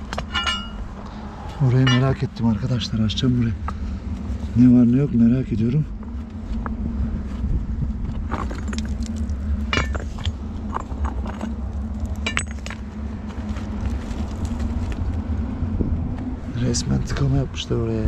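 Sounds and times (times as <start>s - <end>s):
low rumble: 0.0s - 18.0s
stones clinking and knocking: 8.1s - 15.0s.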